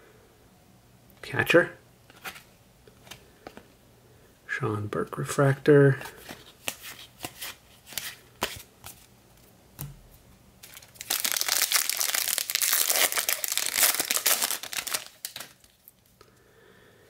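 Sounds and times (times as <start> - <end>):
card pack wrapper tearing and crinkling: 10.6 - 15.9.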